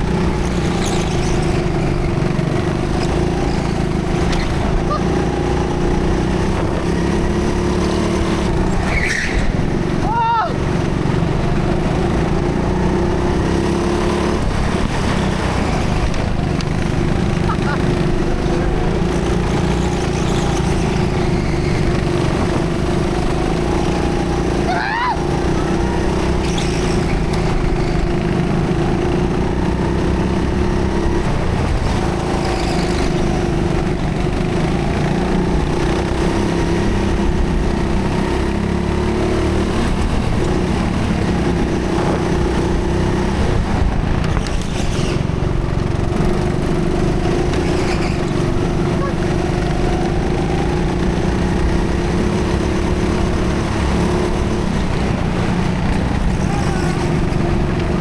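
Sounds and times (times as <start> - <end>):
go-kart engine drone: 0.0 - 58.0
road and air noise: 0.0 - 58.0
brief high squeal: 8.9 - 9.5, 44.4 - 45.2.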